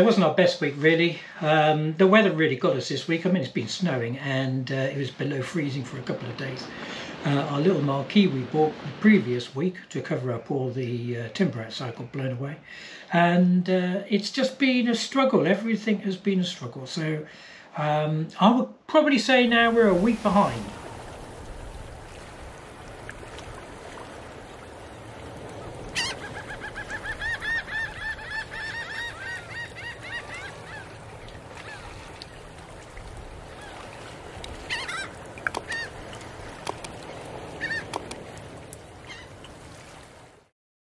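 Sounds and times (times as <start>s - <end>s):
birds calling: 19.4s - 23.2s, 24.0s - 32.8s, 33.4s - 39.6s.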